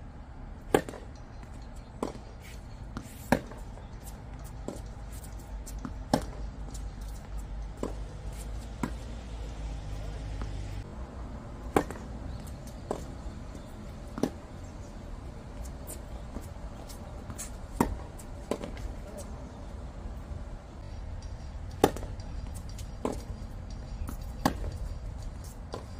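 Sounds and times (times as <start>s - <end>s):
tennis ball struck with rackets: 0.6s - 1.4s, 3.0s - 9.1s, 9.8s - 10.9s, 11.6s - 13.2s, 14.0s - 14.5s, 15.9s - 18.9s, 21.2s - 25.9s
tennis ball bouncing: 0.6s - 10.9s, 11.6s - 19.2s, 21.1s - 25.9s.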